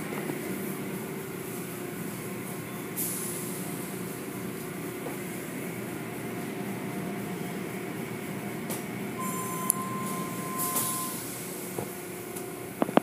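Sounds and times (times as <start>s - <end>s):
car wash machinery rumble: 0.0s - 13.0s
faint steady tone: 9.2s - 11.3s.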